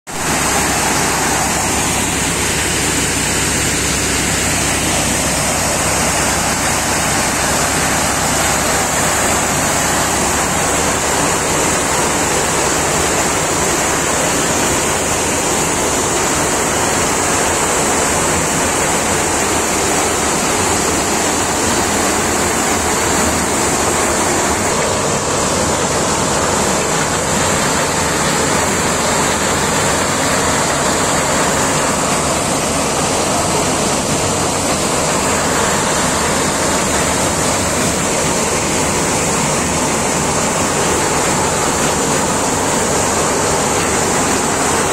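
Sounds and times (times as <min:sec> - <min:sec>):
tractor diesel engine: 0:00.0 - 0:44.9
thresher rushing noise: 0:00.1 - 0:44.9.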